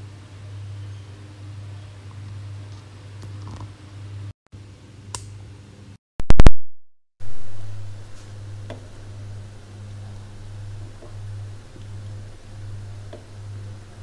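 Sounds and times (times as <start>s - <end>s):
steady low hum: 7.2s - 14.0s.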